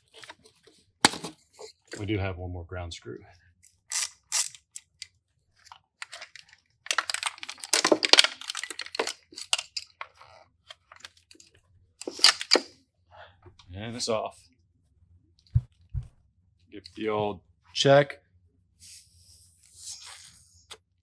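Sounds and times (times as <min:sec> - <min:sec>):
clicks and rattles of handling: 0:03.6 - 0:12.7.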